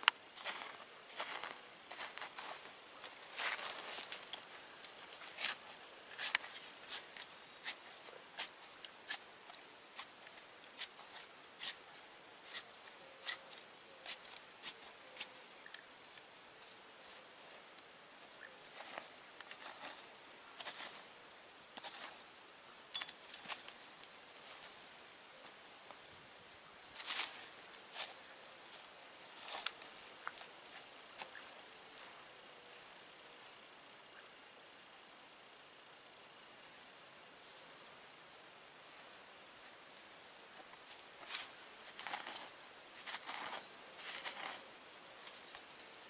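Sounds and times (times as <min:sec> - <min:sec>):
hand tool scraping dry soil: 0:00.4 - 0:15.6, 0:18.4 - 0:21.1, 0:21.8 - 0:22.2, 0:40.6 - 0:46.0.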